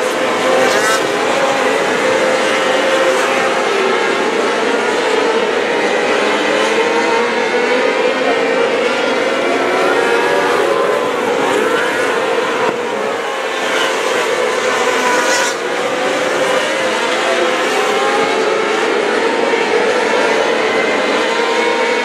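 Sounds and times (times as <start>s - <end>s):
race car engines revving: 0.0s - 22.0s.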